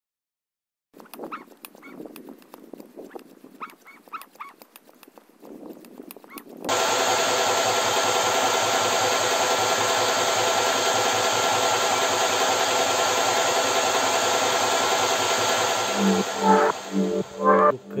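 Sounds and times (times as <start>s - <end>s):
air compressor running: 6.7s - 17.6s.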